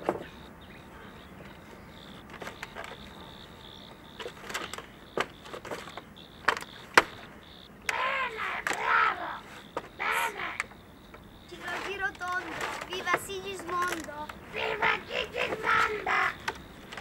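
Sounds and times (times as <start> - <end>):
parrot squawking: 7.9 - 10.6, 14.5 - 16.5
knocks and scrapes on tile roof: 11.5 - 14.1.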